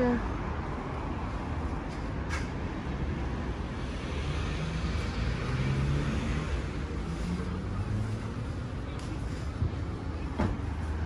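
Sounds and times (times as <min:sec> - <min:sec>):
road hum: 0:00.0 - 0:11.0
vehicle passing: 0:02.9 - 0:11.0.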